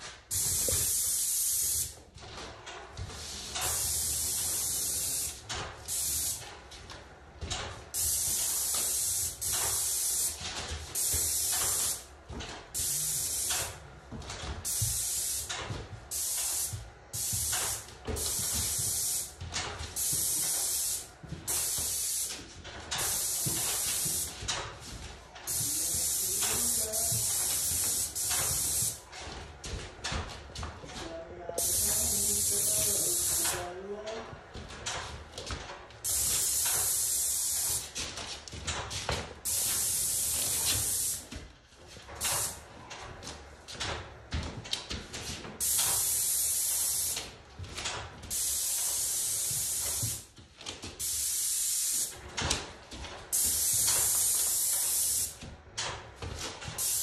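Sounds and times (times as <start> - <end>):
paint spray gun hissing: 0.3 - 1.9, 3.5 - 6.4, 8.0 - 10.4, 11.0 - 12.0, 12.8 - 13.7, 14.7 - 15.5, 16.1 - 19.3, 20.0 - 24.3, 25.5 - 29.0, 31.6 - 33.6, 36.0 - 37.9, 39.4 - 41.2, 42.2 - 42.6, 45.6 - 47.2, 48.3 - 50.2, 51.0 - 52.1, 53.3 - 55.4, 56.8 - 57.0.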